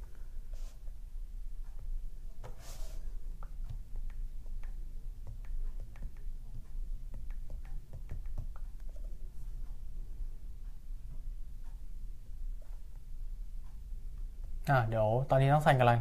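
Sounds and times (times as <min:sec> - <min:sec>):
fingertips tapping a touchscreen: 0:01.6 - 0:14.7.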